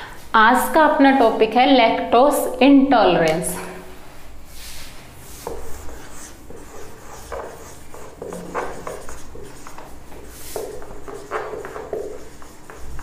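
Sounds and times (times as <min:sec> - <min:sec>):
marker writing on whiteboard: 0:05.3 - 0:13.0.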